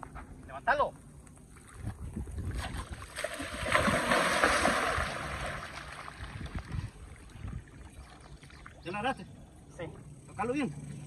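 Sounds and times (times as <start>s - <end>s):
fish thrashing and splashing: 2.6s - 7.0s.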